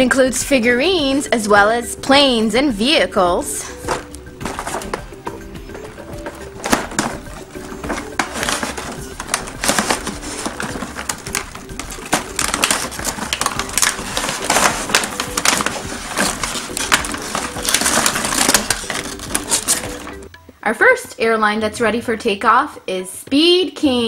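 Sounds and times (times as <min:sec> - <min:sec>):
plastic and cardboard crinkling: 0:03.5 - 0:20.3.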